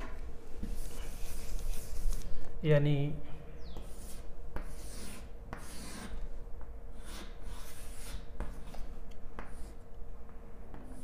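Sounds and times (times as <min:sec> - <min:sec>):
chalk scratching on chalkboard: 0:00.6 - 0:02.3, 0:03.8 - 0:06.2, 0:07.0 - 0:09.8, 0:10.8 - 0:11.0
chalk tapping on board: 0:03.7 - 0:06.1, 0:07.0 - 0:09.8.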